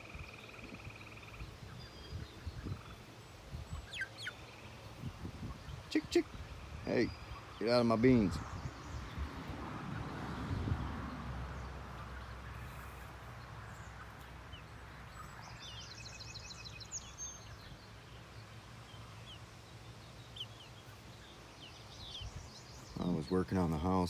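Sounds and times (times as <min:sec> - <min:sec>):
bird twittering trill: 0:00.0 - 0:09.3, 0:11.5 - 0:24.0
birds chirping: 0:00.0 - 0:24.0.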